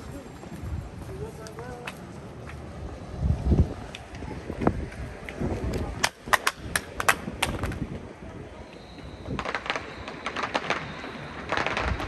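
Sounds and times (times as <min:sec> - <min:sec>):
street crowd voices: 0:00.0 - 0:12.0
firecracker pops: 0:05.6 - 0:07.9, 0:09.2 - 0:12.0.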